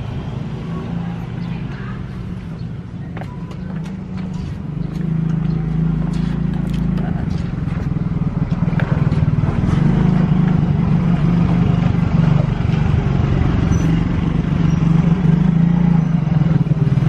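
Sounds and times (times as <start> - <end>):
engine droning steadily: 0.0 - 17.0.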